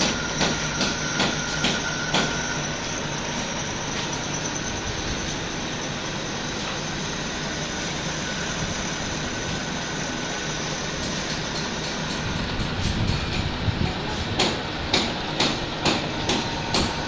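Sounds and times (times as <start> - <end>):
drill press running: 0.0 - 17.0.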